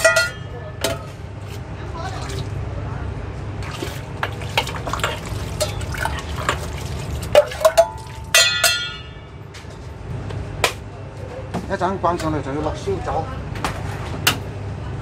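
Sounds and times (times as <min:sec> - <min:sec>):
ladle clinking on metal: 0:00.0 - 0:00.5, 0:07.4 - 0:09.2
ladle clanging against pot: 0:00.0 - 0:01.0, 0:07.4 - 0:09.2
sauce pouring and splashing: 0:03.6 - 0:08.4.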